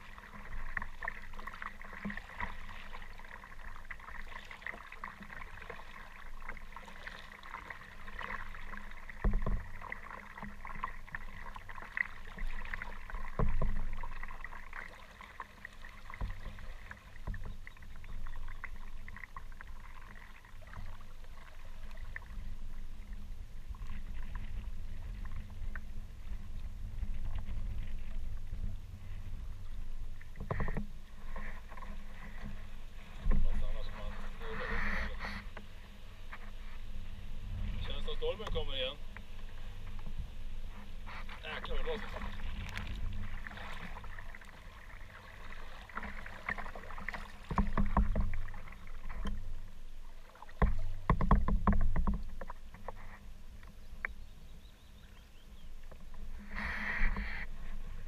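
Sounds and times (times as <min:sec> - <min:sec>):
water splashing around hull: 0:00.0 - 0:58.0
knocks on boat hull: 0:50.6 - 0:52.3.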